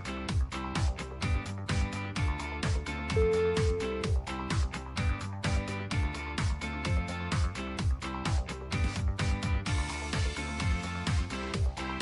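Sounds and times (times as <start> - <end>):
music with kick-drum beat: 0.0 - 12.0.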